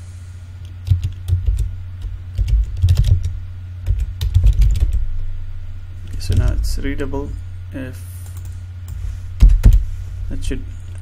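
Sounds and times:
low hum: 0:00.0 - 0:11.0
typing on computer keyboard: 0:00.8 - 0:01.7, 0:02.4 - 0:03.3, 0:03.9 - 0:05.0.

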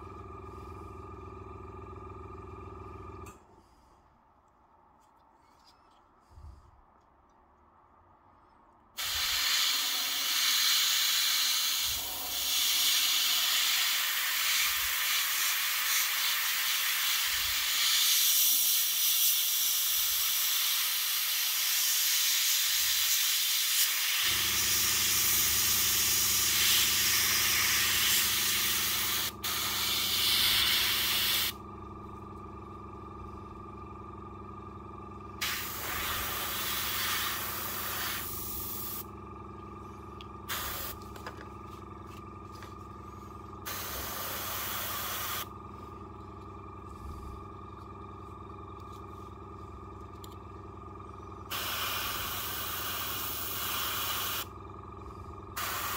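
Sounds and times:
compressor motor humming: 0:00.0 - 0:03.8, 0:09.0 - 0:15.5, 0:24.0 - 0:55.9
airbrush spraying hiss: 0:09.0 - 0:31.6, 0:35.4 - 0:39.0, 0:40.5 - 0:41.0, 0:43.7 - 0:45.5, 0:51.5 - 0:54.5, 0:55.6 - 0:55.9.

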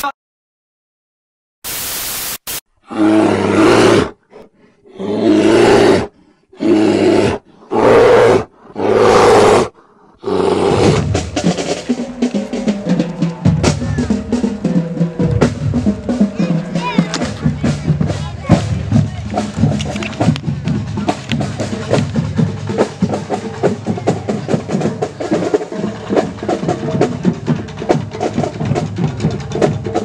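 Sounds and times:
burst of static: 0:01.6 - 0:02.6
marching drumline snare drums: 0:10.8 - 0:30.0.

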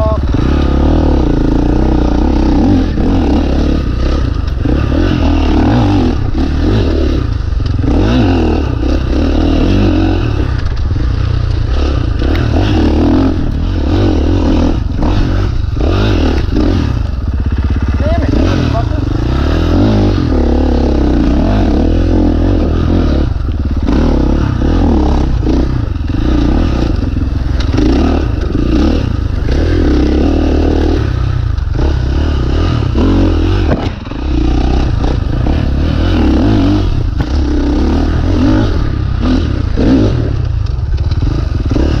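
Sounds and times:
dirt bike engine revving: 0:00.0 - 0:42.0
bike clattering and scraping: 0:01.6 - 0:19.4, 0:21.0 - 0:42.0.

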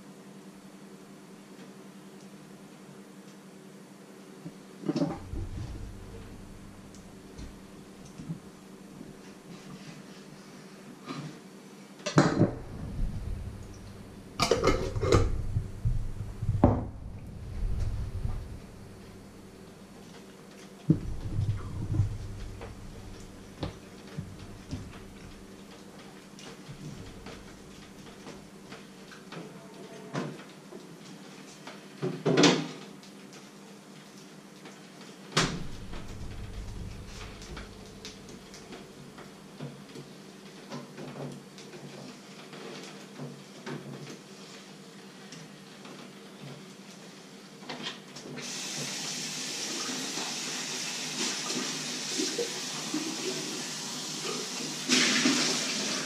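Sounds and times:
faint steady hum: 0:04.1 - 0:30.2, 0:35.4 - 0:39.7
kitchen knocks and clunks: 0:04.9 - 0:08.4, 0:12.1 - 0:19.3.

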